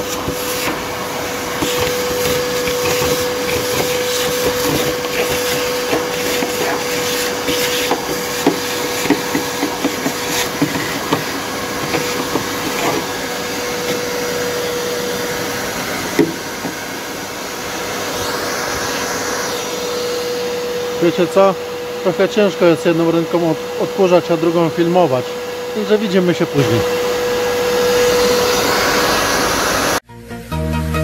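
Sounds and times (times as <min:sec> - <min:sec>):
vacuum cleaner running: 0:00.0 - 0:30.1.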